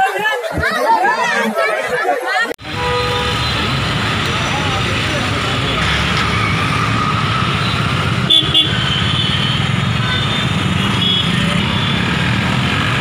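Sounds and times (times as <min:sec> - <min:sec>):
crowd of people: 0:00.0 - 0:13.0
car horns tooting: 0:02.6 - 0:12.2
traffic: 0:02.6 - 0:13.0.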